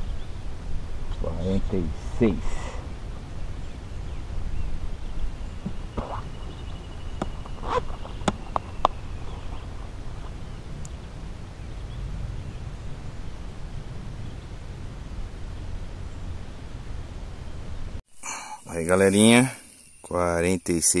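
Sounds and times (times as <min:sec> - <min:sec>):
wind rumbling on microphone: 0:00.0 - 0:18.0.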